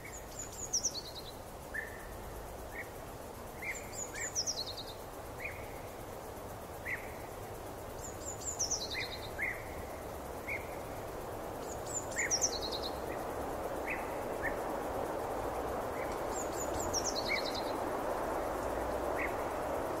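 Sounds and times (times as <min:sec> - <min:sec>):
steady rushing hiss: 0:00.0 - 0:20.0.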